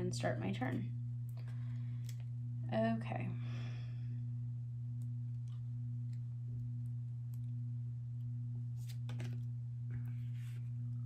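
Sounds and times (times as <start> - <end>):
steady low hum: 0.0 - 11.0
trading cards rustling: 8.8 - 9.5.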